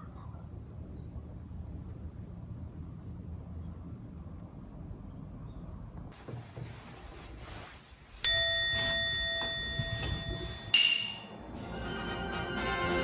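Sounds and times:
bright bell ding: 8.2s - 11.4s.

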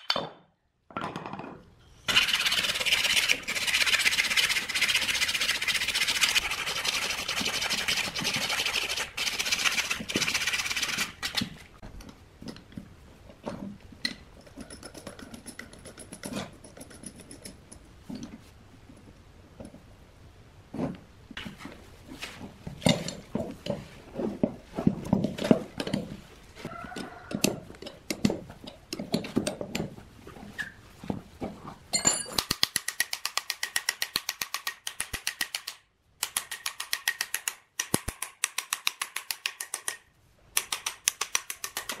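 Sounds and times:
metal clinks and knocks: 31.9s - 32.5s.

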